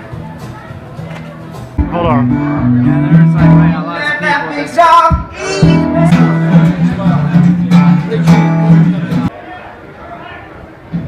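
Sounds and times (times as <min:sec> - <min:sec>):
acoustic guitar strumming: 0:00.0 - 0:09.3
person singing: 0:02.1 - 0:09.2.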